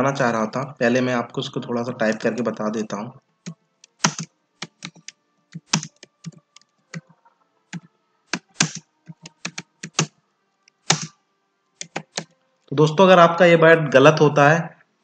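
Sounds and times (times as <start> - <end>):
keyboard typing: 2.0 - 11.2, 11.8 - 12.4.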